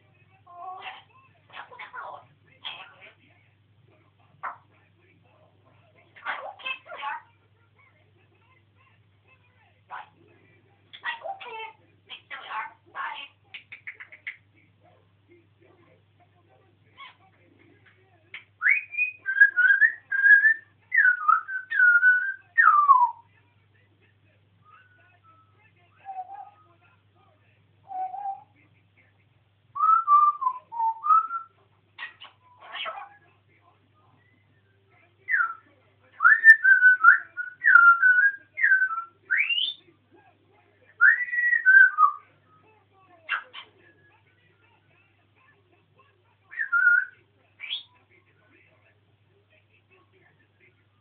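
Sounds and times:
parrot whistling: 0:18.6 - 0:23.2, 0:27.8 - 0:28.5, 0:29.8 - 0:33.1, 0:35.3 - 0:39.8, 0:41.0 - 0:42.3, 0:46.5 - 0:47.9.

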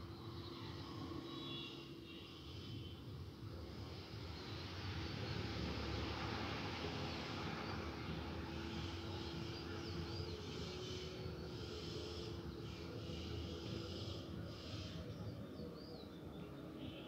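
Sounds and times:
outdoor background rumble: 0:03.4 - 0:16.9.

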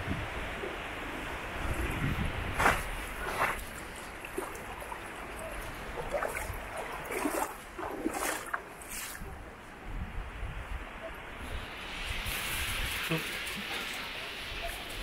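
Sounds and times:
seawater sloshing and trickling: 0:01.6 - 0:09.3
soft water splashes: 0:01.6 - 0:09.4.

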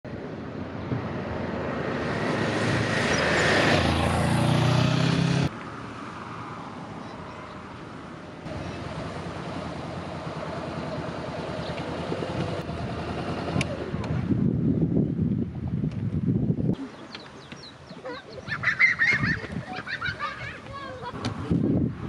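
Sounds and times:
vehicle passing close by: 0:00.6 - 0:14.4
motorcycle engine running slowly: 0:08.5 - 0:14.4.

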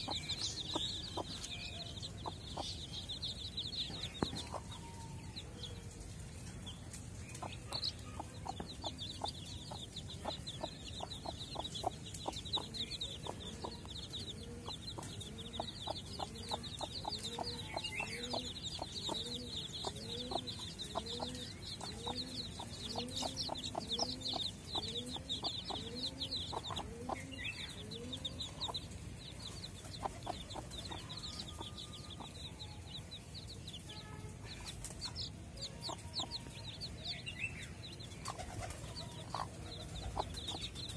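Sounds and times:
chicks peeping: 0:00.0 - 0:40.9
hen clucking: 0:07.4 - 0:32.8.

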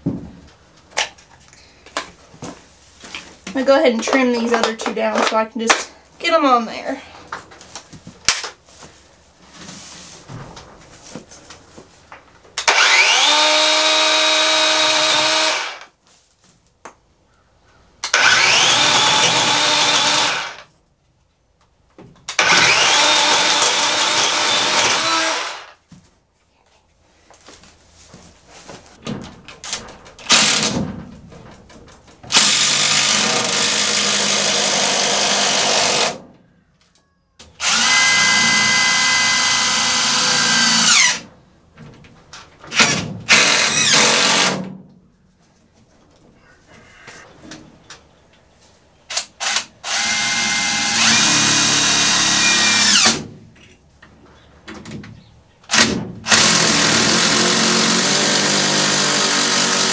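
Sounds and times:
battery chainsaw cutting logs: 0:12.6 - 0:15.9, 0:18.1 - 0:20.7, 0:22.3 - 0:25.8, 0:32.3 - 0:36.2, 0:37.6 - 0:41.2, 0:42.7 - 0:44.6, 0:49.2 - 0:53.2, 0:55.7 - 0:59.9.

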